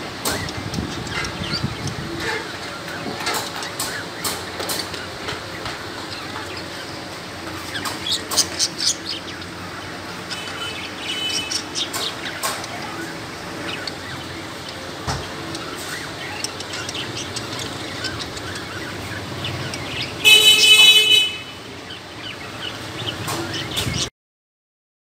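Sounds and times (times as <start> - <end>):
cockatiels chirping: 10.3 - 20.9.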